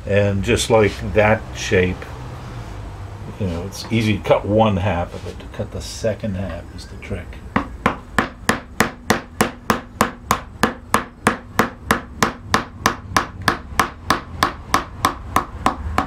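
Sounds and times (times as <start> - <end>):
mallet tapping carving gouge: 7.5 - 16.0.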